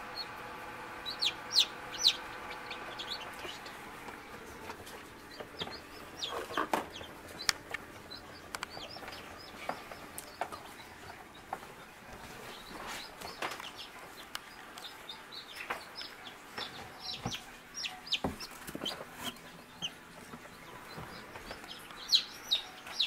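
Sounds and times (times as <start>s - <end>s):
chicks peeping: 0.0s - 23.0s.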